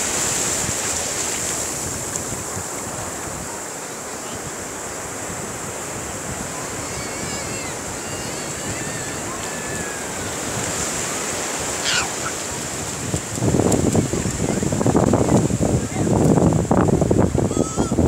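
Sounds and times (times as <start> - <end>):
surf washing over sand: 0.0 - 18.0
wind on microphone: 0.0 - 18.0
brief high cry: 11.8 - 12.3.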